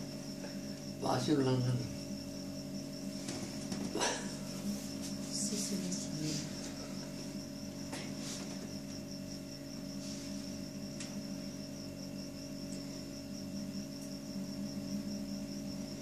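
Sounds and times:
high-pitched insect chirping: 0.0 - 16.0
steady low hum: 0.0 - 16.0.

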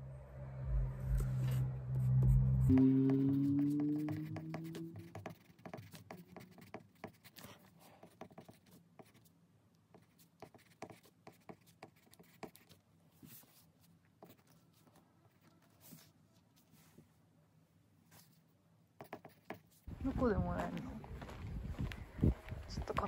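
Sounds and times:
pencil scratching on paper: 3.0 - 9.3, 9.9 - 16.1, 19.0 - 19.9.

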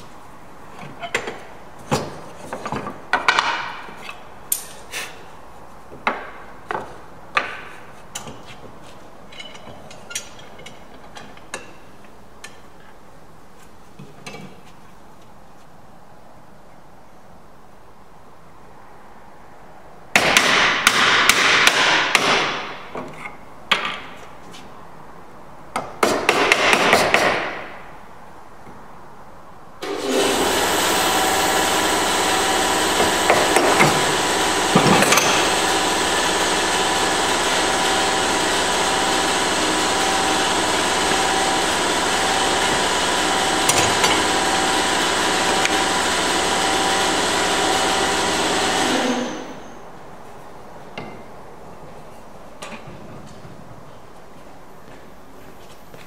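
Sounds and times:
workshop machine humming: 29.8 - 49.6.

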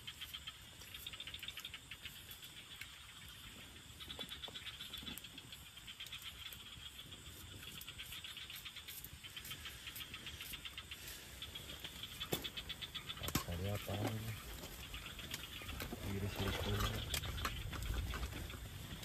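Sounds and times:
insects chirping in pulsed trills: 0.0 - 19.0.

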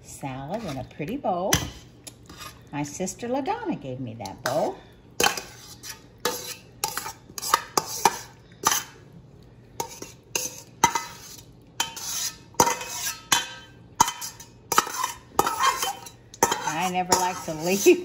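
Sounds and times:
spoon scraping bowl: 0.4 - 1.2, 2.2 - 2.7, 5.2 - 9.0, 9.8 - 18.0
metal spoon clinking on bowl: 11.8 - 17.9.

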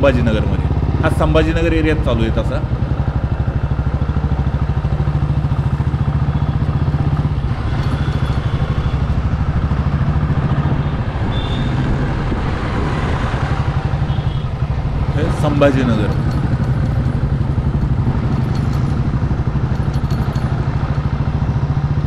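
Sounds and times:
motorcycle engine running: 0.0 - 22.0
road noise: 0.0 - 22.0.

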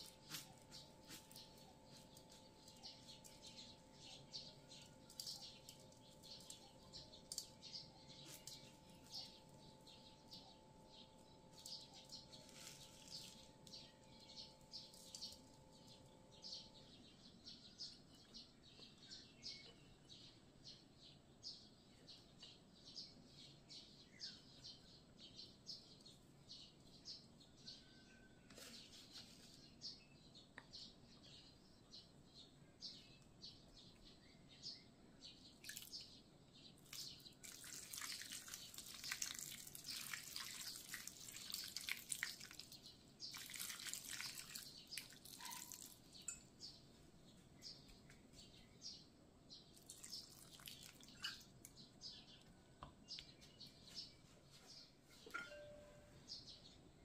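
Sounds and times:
bird chirps: 0.0 - 26.0, 26.6 - 36.2, 44.6 - 56.8
water pouring into metal pan: 36.9 - 42.7, 43.3 - 46.0, 49.8 - 51.4.

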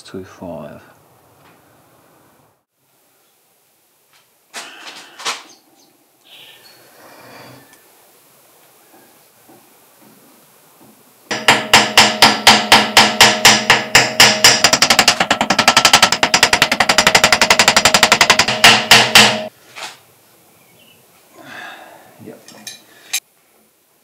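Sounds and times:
rapid metal-on-metal hammering: 11.3 - 19.5.

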